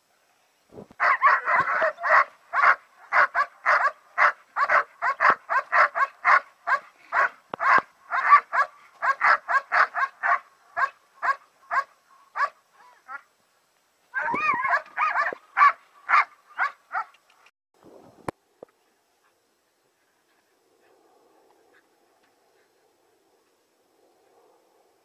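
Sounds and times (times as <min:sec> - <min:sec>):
puppy barking and yipping: 0:01.0 - 0:12.5, 0:14.2 - 0:17.1.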